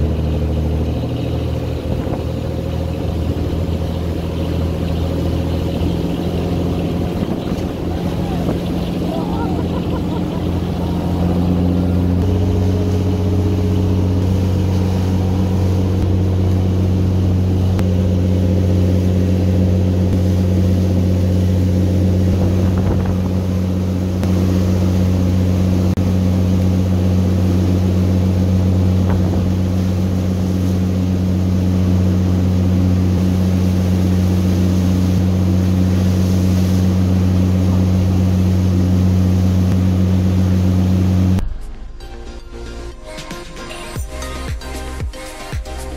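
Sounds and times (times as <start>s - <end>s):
water splashing in boat wake: 0.0s - 41.5s, 43.3s - 45.9s
boat engines droning: 0.0s - 45.9s.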